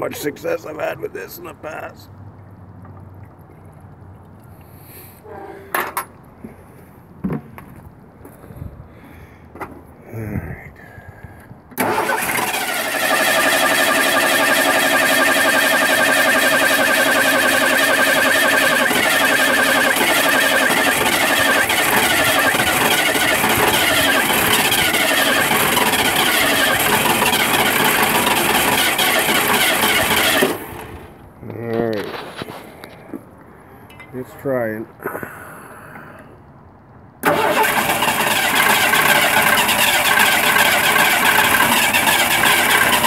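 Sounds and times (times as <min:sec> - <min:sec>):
starter motor cranking: 0:11.8 - 0:31.0, 0:37.2 - 0:43.0.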